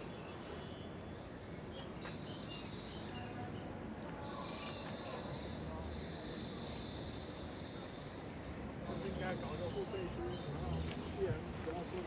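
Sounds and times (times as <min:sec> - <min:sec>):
distant crowd murmur: 0:00.0 - 0:12.0.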